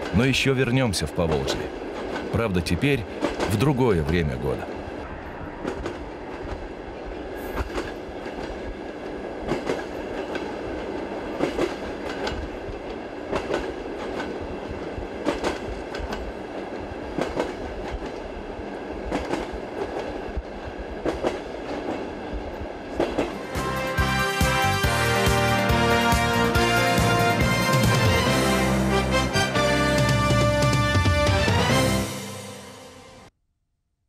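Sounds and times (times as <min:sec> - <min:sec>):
train rumbling: 0:00.0 - 0:33.2
wheels clacking over rail joints: 0:01.2 - 0:02.4.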